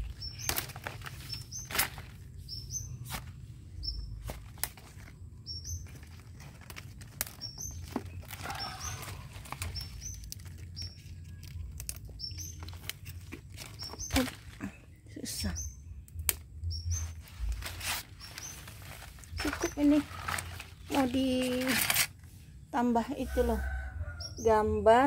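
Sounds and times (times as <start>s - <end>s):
stems snapping by hand: 0.0s - 2.3s, 4.1s - 14.7s, 16.0s - 22.1s
small bird chirping: 0.0s - 22.9s
leaves rustling: 0.0s - 23.8s.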